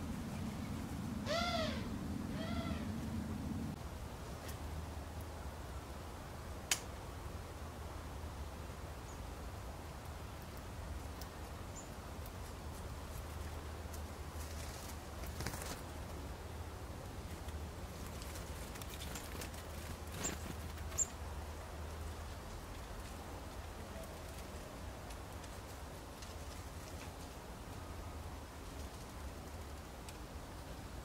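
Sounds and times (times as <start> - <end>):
low steady hum: 0.0 - 31.0
wing flutters: 14.3 - 16.1, 17.3 - 21.2.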